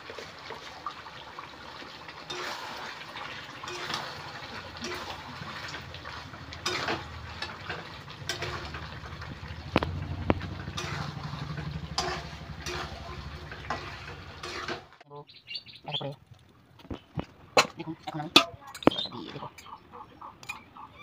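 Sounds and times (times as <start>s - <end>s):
metal spatula scraping pan: 2.3s - 15.0s
spatula clinking on pan: 3.7s - 5.2s, 6.6s - 8.8s, 11.9s - 13.0s.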